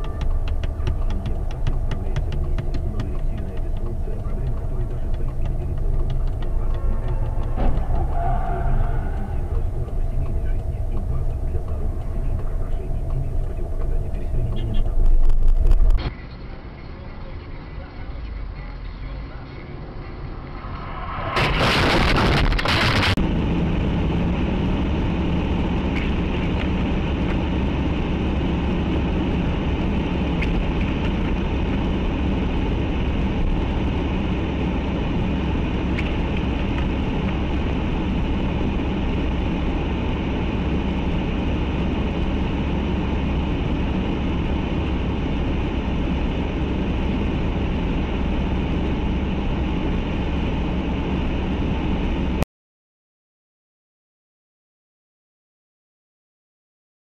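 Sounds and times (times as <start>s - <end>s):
car engine and tyre drone: 0.0s - 52.4s
loud harsh burst of noise: 20.5s - 23.2s.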